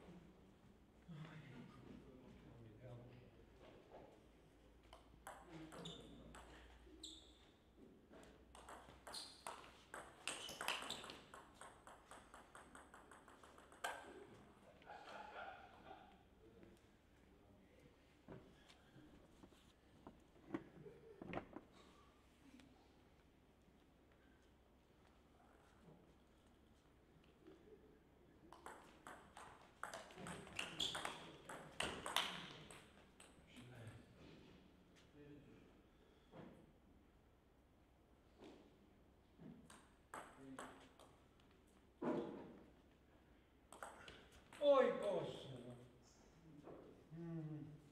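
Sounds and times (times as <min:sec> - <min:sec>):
table tennis ball clicks: 0:08.6 - 0:14.2.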